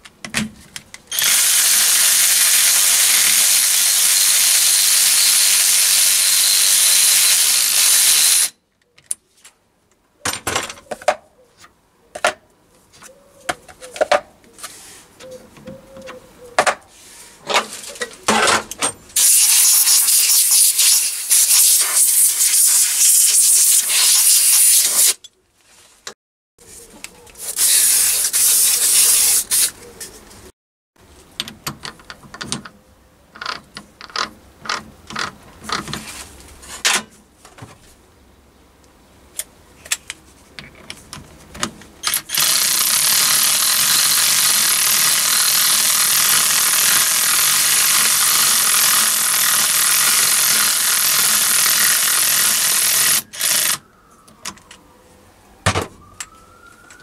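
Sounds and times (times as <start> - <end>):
cordless ratchet wrench running: 1.1 - 8.5, 19.2 - 25.2, 42.0 - 53.8.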